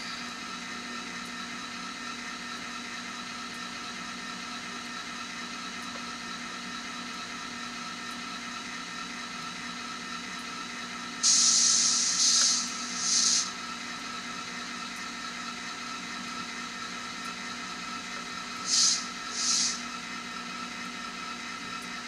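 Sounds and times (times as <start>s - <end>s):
model diesel engine hum: 0.0s - 22.0s
air hiss burst: 11.2s - 13.5s, 18.6s - 19.9s.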